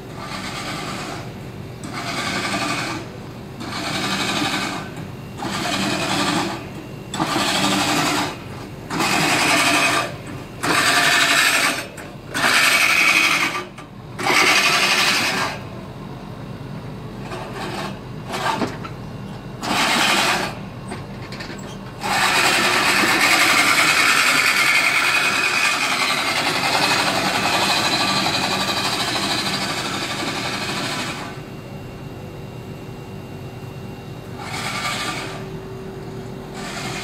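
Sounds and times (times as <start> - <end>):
push reel lawn mower cutting grass: 22.0 - 30.2, 34.4 - 35.4, 36.6 - 37.0.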